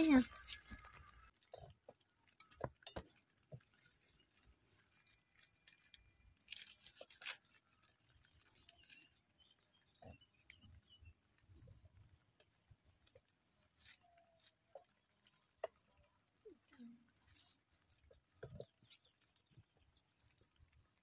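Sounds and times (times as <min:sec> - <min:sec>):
leaves rustling: 0:00.0 - 0:01.4.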